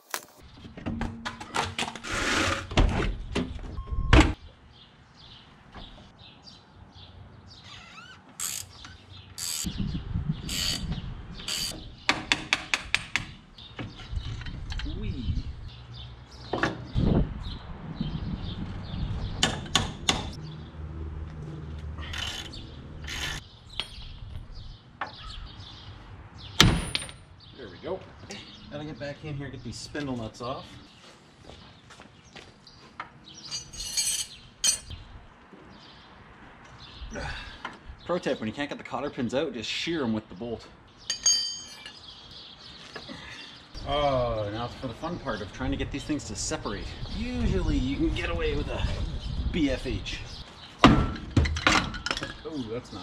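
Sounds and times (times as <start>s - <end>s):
metal clanks and knocks: 0.6s - 2.0s.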